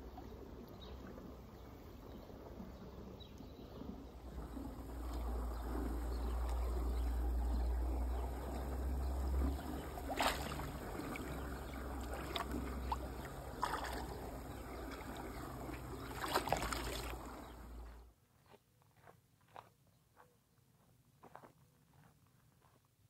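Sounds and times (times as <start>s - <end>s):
water sloshing and splashing: 3.8s - 18.0s.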